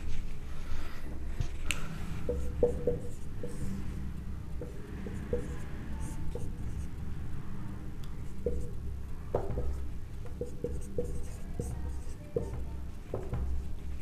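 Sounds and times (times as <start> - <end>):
marker scratching on whiteboard: 0.0 - 7.5, 8.2 - 14.0
low steady hum: 0.0 - 14.0
marker tapping on whiteboard: 1.7 - 3.8, 4.6 - 6.8, 8.3 - 14.0.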